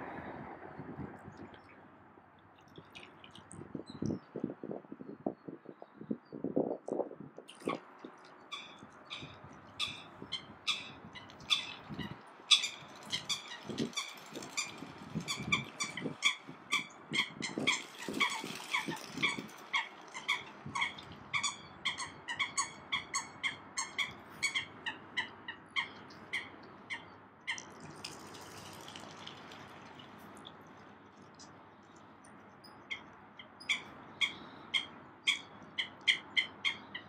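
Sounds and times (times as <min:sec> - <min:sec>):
soft low bird sounds: 0:00.0 - 0:37.0
waterbirds short sharp calls: 0:07.5 - 0:30.5.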